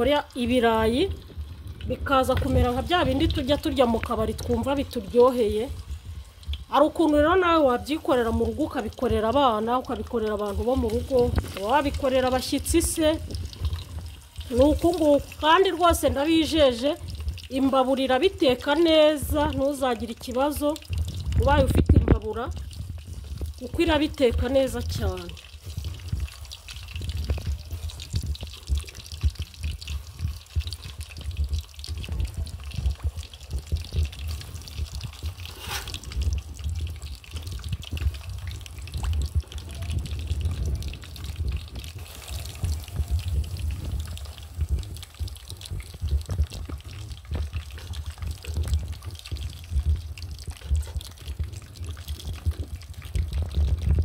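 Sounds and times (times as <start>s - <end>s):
potatoes deep-frying in oil: 0.0s - 54.0s.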